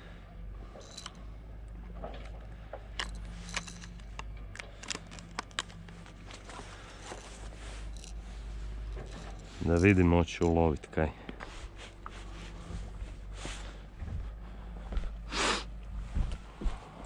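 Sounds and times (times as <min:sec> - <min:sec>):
low background rumble: 0:00.0 - 0:17.0
plastic packaging crinkling: 0:03.0 - 0:07.4.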